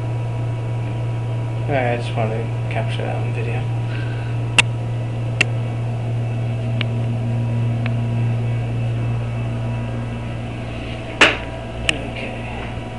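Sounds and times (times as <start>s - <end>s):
equipment humming: 0.0s - 12.9s
loud knock: 11.2s - 11.5s.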